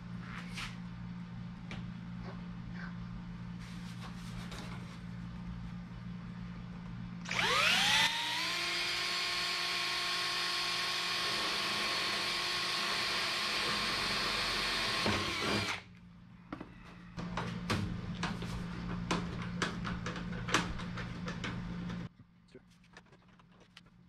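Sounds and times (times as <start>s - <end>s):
electric drill whining: 7.3s - 15.8s.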